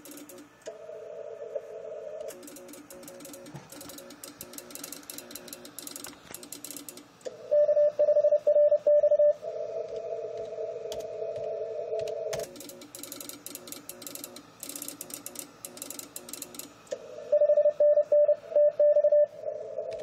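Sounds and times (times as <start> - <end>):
rapid clicking: 0.0 - 0.5, 2.3 - 7.1
morse code beeping: 17.3 - 19.4.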